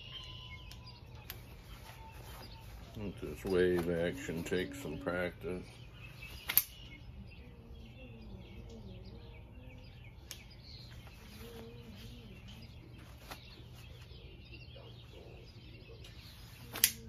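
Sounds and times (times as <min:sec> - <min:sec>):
faint birds chirping: 0:00.0 - 0:17.0
low wavering hum: 0:00.0 - 0:17.0
folding knife clicks: 0:06.5 - 0:06.8, 0:16.8 - 0:17.0.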